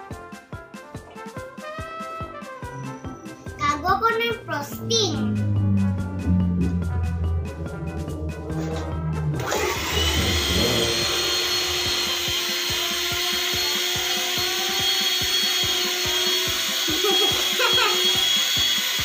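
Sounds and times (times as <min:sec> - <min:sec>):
electric hand mixer whine: 0:04.9 - 0:19.0.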